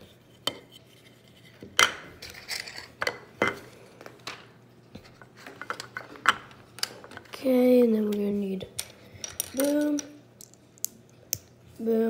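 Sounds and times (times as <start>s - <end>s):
plastic bricks clicking: 8.8s - 11.5s.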